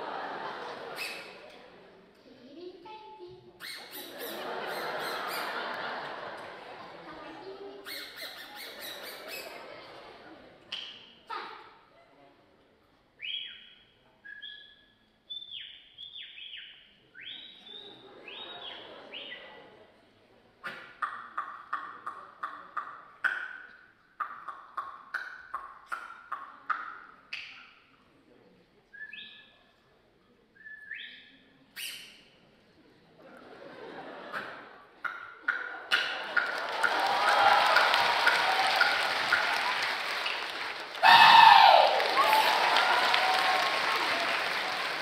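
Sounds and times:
squeaky mouth peeps and clicks: 3.6 - 4.3, 7.8 - 9.4, 20.6 - 27.8.

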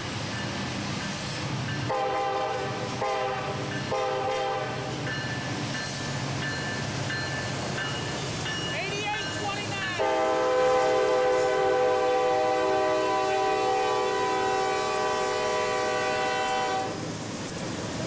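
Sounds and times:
rumble of passing train: 0.0 - 18.0
locomotive air horn blast: 1.9 - 4.9, 10.0 - 17.0.

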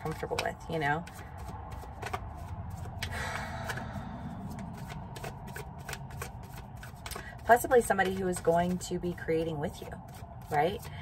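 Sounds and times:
cards being shuffled: 0.0 - 11.0.

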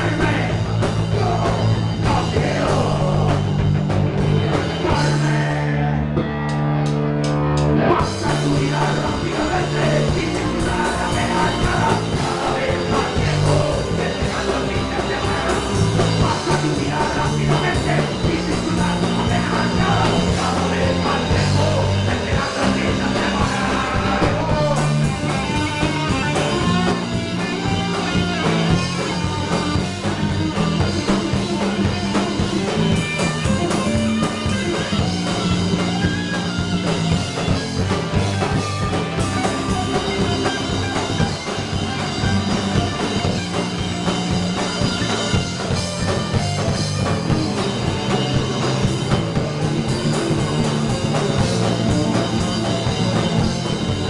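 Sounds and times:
drum kit: 0.0 - 54.0
electric guitars: 0.0 - 54.0.

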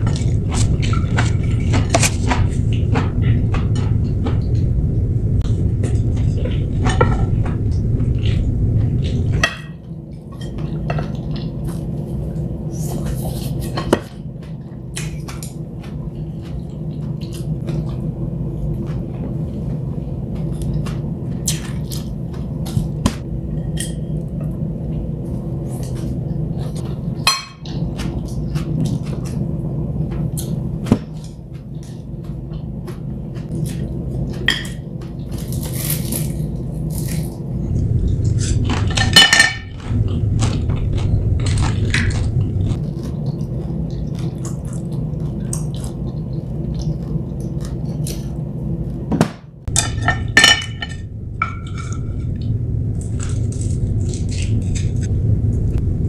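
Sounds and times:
steady low hum: 0.0 - 56.0
eating sounds: 25.6 - 49.0.

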